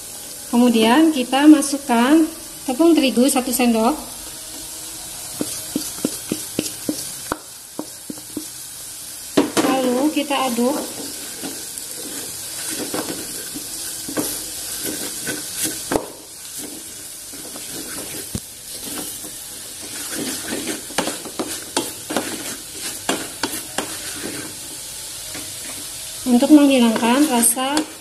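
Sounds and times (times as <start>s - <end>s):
steady sizzle: 0.0s - 28.0s
wooden spatula scraping a pot: 10.5s - 24.7s, 25.3s - 28.0s.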